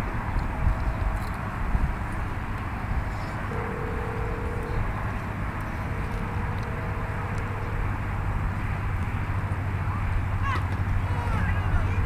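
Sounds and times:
low outdoor rumble: 0:00.0 - 0:12.0
faint hum: 0:03.0 - 0:10.4.

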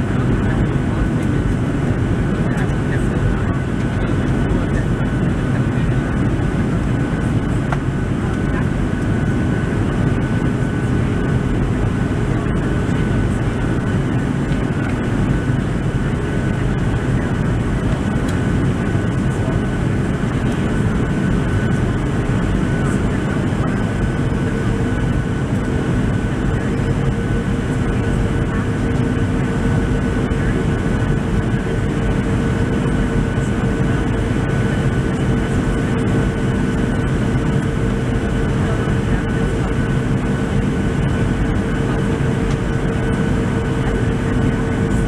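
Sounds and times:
jet engine drone: 0:00.0 - 0:45.0
lower whine: 0:00.0 - 0:45.0.

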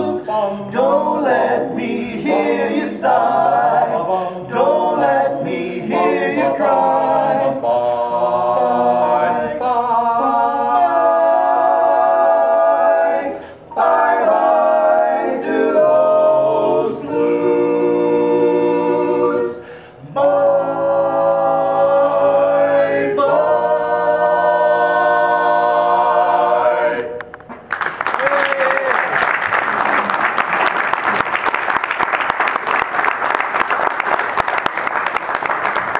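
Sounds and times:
male quartet singing in harmony: 0:00.0 - 0:27.3.

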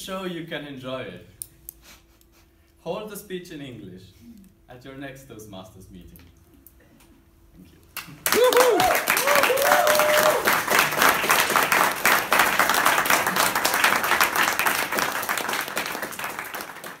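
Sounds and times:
audience applauding: 0:08.0 - 0:17.0
audience cheering: 0:08.2 - 0:17.0.

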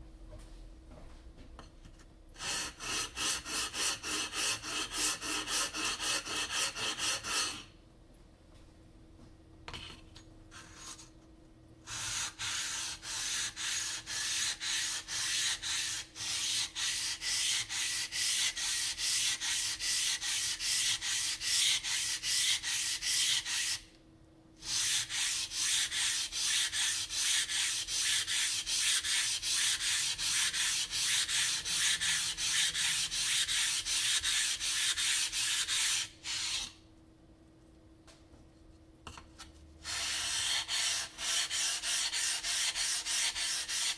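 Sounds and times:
diamond plate scraping whetstone: 0:02.4 - 0:07.7, 0:11.9 - 0:23.8, 0:39.8 - 0:43.9.

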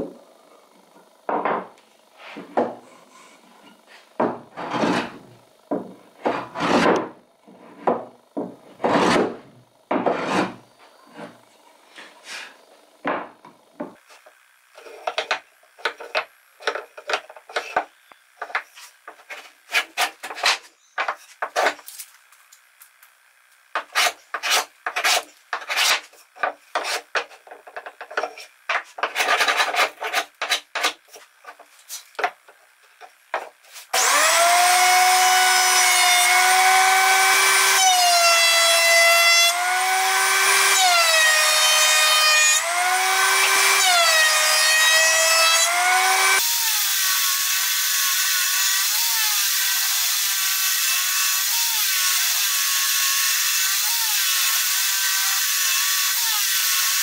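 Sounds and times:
thickness planer whine: 0:00.0 - 0:22.0, 0:23.7 - 0:47.4
hand plane scraping swish: 0:06.3 - 0:07.0, 0:08.8 - 0:09.4, 0:10.1 - 0:12.6, 0:23.8 - 0:32.1.

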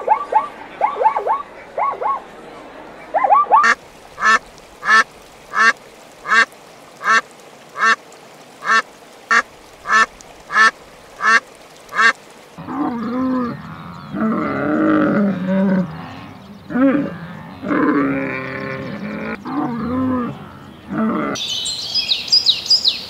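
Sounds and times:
duck quacking: 0:03.3 - 0:07.2, 0:07.8 - 0:08.0, 0:08.6 - 0:12.2.

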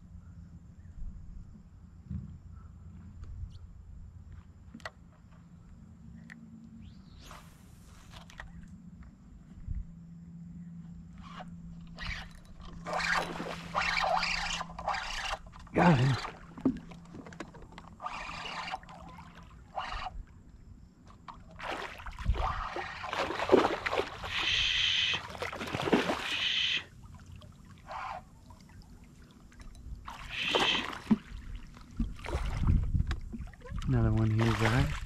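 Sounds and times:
fish thrashing and splashing: 0:12.0 - 0:20.1, 0:21.5 - 0:27.8, 0:28.4 - 0:33.7.

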